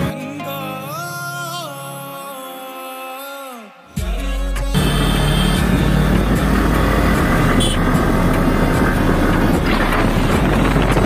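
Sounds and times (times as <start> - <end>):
scooter engine running: 4.8 - 11.0
wind noise on microphone: 4.9 - 11.0.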